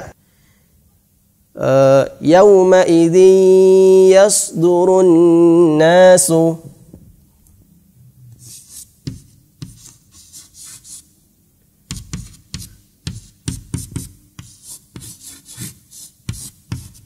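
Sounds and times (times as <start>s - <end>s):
chalk writing on blackboard: 8.4s - 11.1s, 11.9s - 17.0s.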